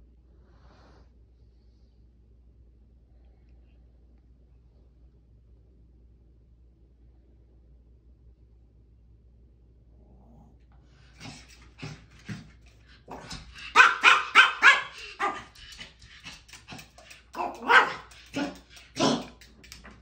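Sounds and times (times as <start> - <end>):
small dog barking and yipping: 11.2 - 20.0.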